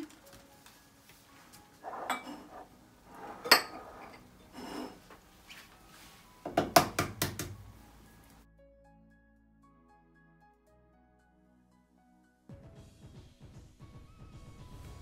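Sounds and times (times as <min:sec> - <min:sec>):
glass bowl clinking: 0:01.8 - 0:05.0
knocks on kitchen counter: 0:06.5 - 0:07.6.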